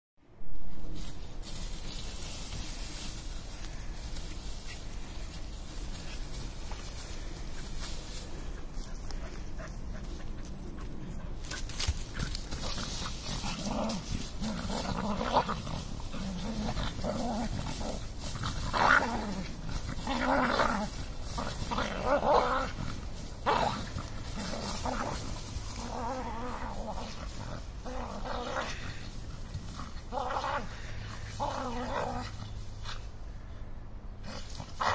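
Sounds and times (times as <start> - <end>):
leaves rustling and scraping: 0.3 - 34.9
dogs growling: 4.9 - 32.6.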